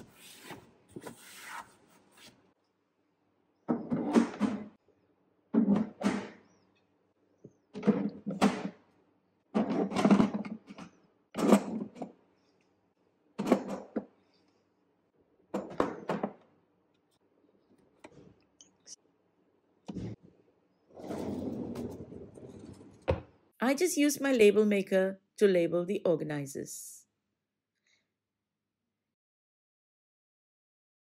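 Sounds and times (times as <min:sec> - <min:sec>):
plastic bins thunking and rattling: 0:05.6 - 0:06.4, 0:07.7 - 0:08.8, 0:09.5 - 0:12.2.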